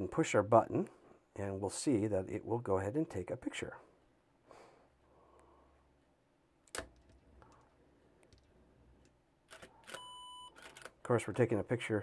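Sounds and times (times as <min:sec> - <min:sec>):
camera shutter clicks: 0:09.5 - 0:11.0.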